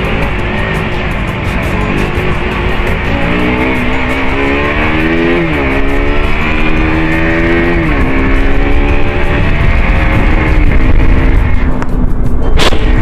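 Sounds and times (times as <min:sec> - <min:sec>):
motorcycle engine accelerating: 0:00.0 - 0:13.0
wind on microphone: 0:08.8 - 0:13.0.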